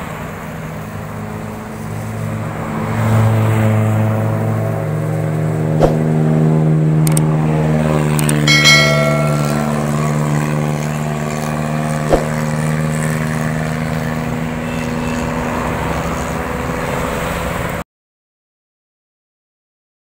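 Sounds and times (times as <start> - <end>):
vehicle engine humming: 0.0 - 17.8
high metallic ring: 8.5 - 11.0.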